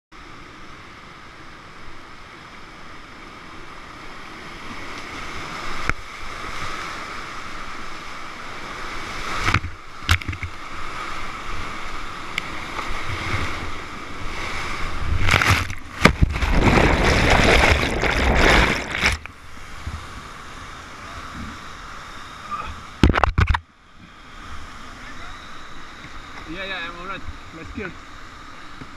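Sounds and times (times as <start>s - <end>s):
whitewater rushing: 9.2s - 23.5s
water churning: 12.4s - 21.4s.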